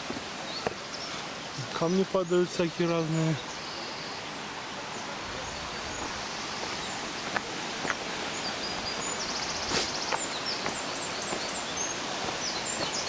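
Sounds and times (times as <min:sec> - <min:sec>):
small birds chirping: 0:00.0 - 0:13.0
stream rushing: 0:00.0 - 0:13.0
footsteps on dirt path: 0:05.8 - 0:08.2, 0:08.9 - 0:13.0.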